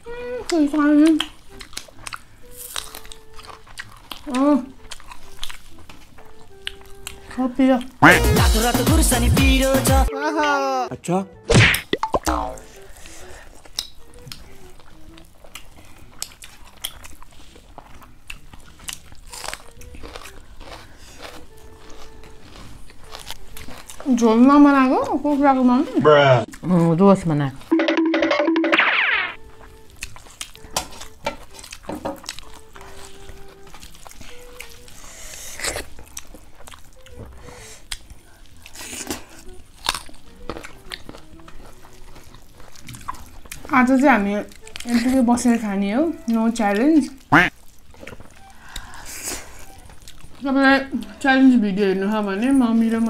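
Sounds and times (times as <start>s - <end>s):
people chewing crunchy food: 0.0s - 10.1s, 12.3s - 27.7s, 29.4s - 53.0s
wet mouth clicks: 11.7s - 12.7s, 13.6s - 14.5s.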